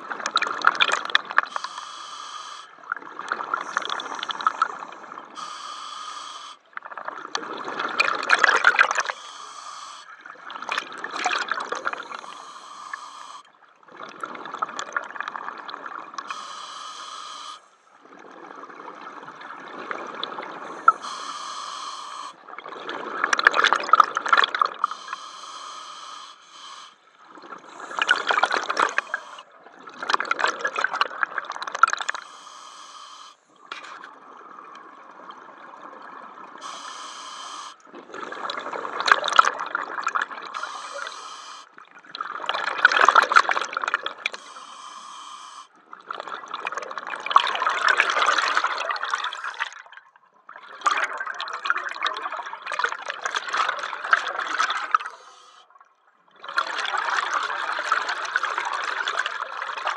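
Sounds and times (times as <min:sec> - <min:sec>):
regulator inhale hiss: 0:01.5 - 0:02.8, 0:03.6 - 0:06.7, 0:09.0 - 0:10.2, 0:11.9 - 0:13.5, 0:16.3 - 0:17.8, 0:20.6 - 0:22.4, 0:24.8 - 0:29.5, 0:32.0 - 0:33.6, 0:36.6 - 0:37.8, 0:40.6 - 0:41.8, 0:44.4 - 0:45.8, 0:54.6 - 0:55.7
exhaled bubbles rushing: 0:10.2 - 0:12.4, 0:27.3 - 0:32.1.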